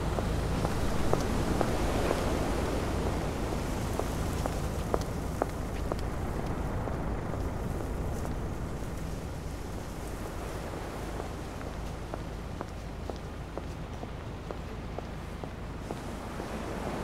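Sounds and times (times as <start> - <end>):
light crackles: 0.1 - 16.2.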